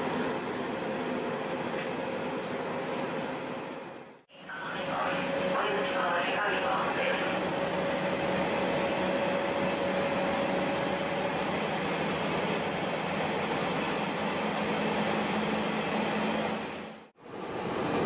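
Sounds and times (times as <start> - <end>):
railcar engine and wheels running: 0.0 - 18.0
low steady hum: 4.3 - 11.6.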